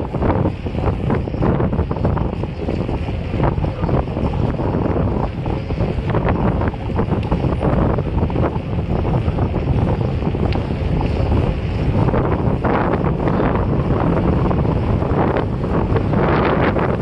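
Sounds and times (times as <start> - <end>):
wind noise on microphone: 0.0 - 17.0.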